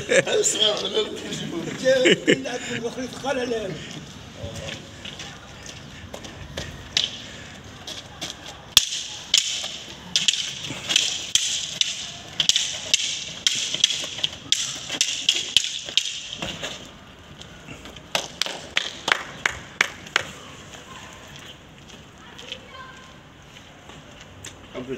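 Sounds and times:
wooden sticks clacking: 6.6 - 19.2.

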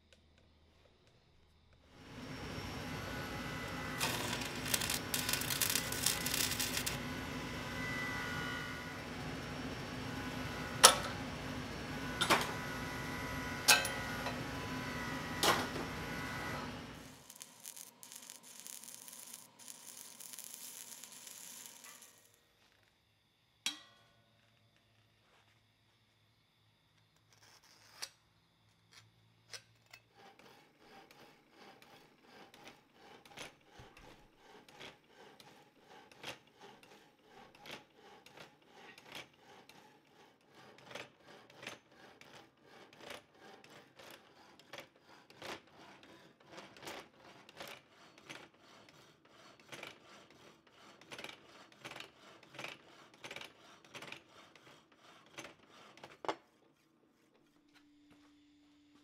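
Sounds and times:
hacksaw rasping through steel: 2.2 - 9.5, 10.3 - 22.3, 30.0 - 56.6
sharp metal clank: 13.7 - 14.1.

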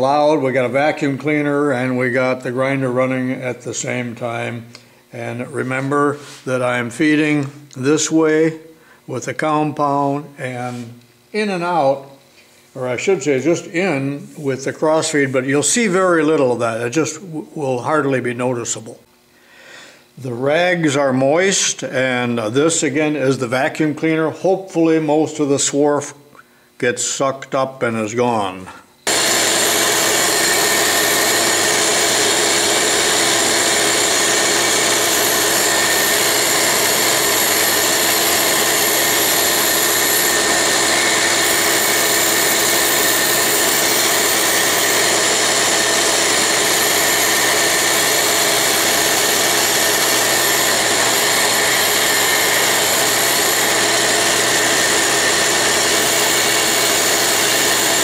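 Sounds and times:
vacuum cleaner running: 0.0 - 12.2, 28.5 - 58.0
grinder whine: 0.0 - 18.9, 27.9 - 58.0.

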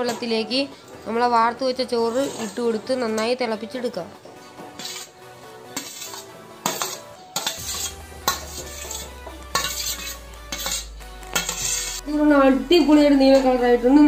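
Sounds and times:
background music: 0.0 - 14.0
metal skimmer scraping a pot: 2.0 - 2.8, 4.8 - 12.0.

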